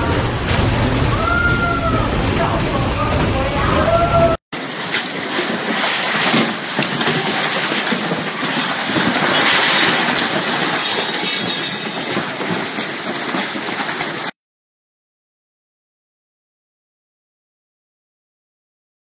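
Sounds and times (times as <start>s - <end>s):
gusting wind and driving rain: 0.0s - 11.1s, 11.8s - 14.3s.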